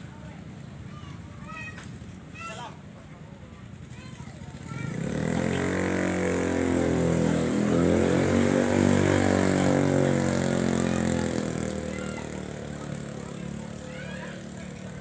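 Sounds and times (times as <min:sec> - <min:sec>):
engine drone passing by: 0:04.8 - 0:15.0.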